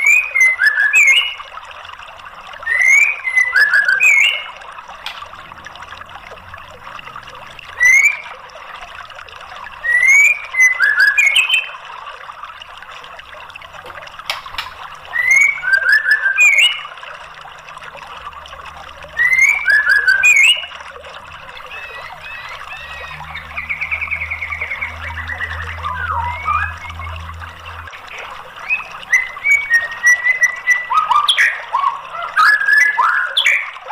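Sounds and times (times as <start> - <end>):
bird singing: 0.0 - 1.4, 2.6 - 4.6, 9.8 - 11.8, 15.1 - 16.9, 19.1 - 33.7.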